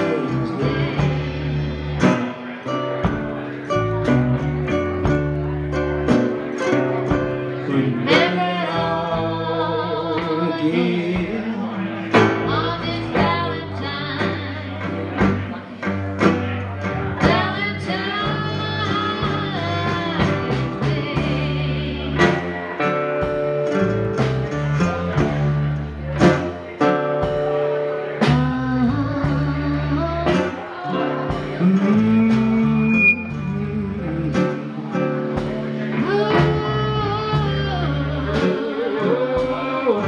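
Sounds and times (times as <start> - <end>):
acoustic guitar: 0.0 - 40.0
drums: 0.0 - 40.0
resonator guitar: 0.0 - 40.0
woman singing: 7.7 - 15.6, 17.2 - 22.6, 28.2 - 34.7, 35.9 - 40.0.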